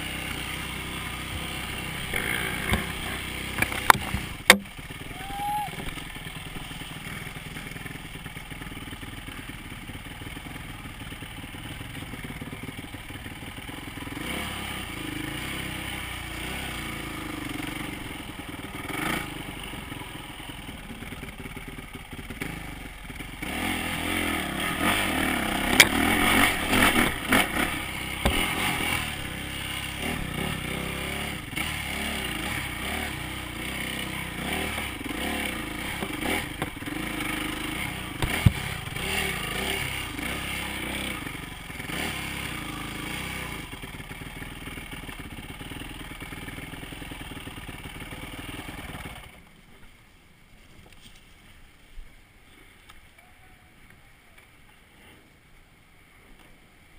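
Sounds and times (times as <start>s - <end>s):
dirt bike engine: 0.0s - 55.4s
clatter and knocks on rough trail: 0.2s - 5.0s, 20.8s - 30.8s, 34.0s - 49.9s.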